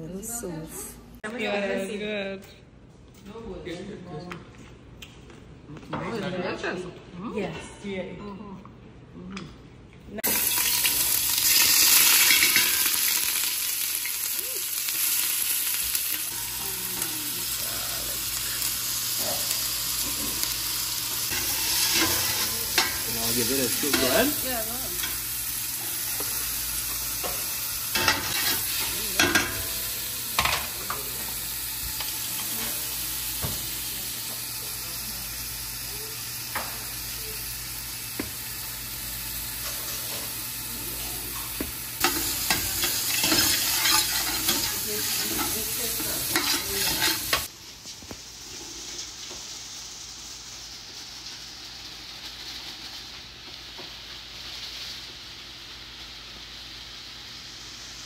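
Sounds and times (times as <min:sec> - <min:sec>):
onion sizzling in a pot: 0:10.2 - 0:58.0
metal spoon scraping a pot: 0:42.0 - 0:47.5.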